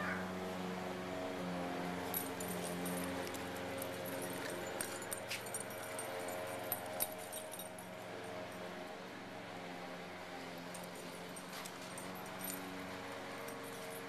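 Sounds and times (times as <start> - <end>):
background hum: 0.0 - 8.9.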